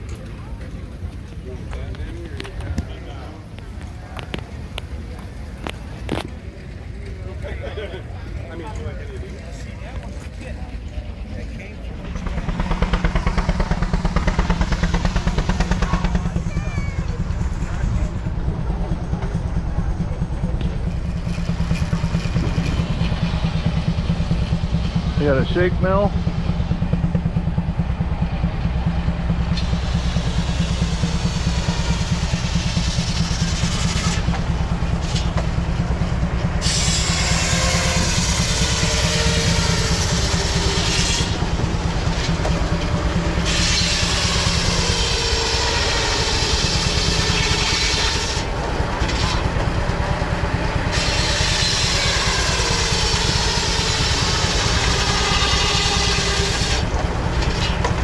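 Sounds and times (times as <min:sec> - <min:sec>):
engine chugging: 0:00.0 - 0:58.0
saw cutting with whining blade: 0:36.6 - 0:49.6, 0:50.8 - 0:58.0.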